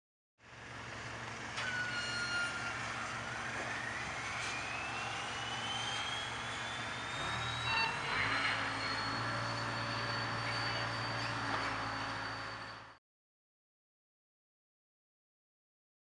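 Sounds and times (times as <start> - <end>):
rising whistle-like tone: 1.6 - 13.0
low hum: 2.6 - 12.9.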